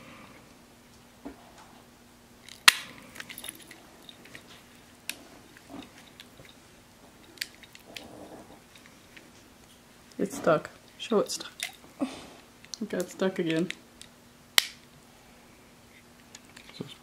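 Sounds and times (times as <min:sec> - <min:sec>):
nail clipper snapping: 0:02.5 - 0:02.9, 0:14.0 - 0:14.8.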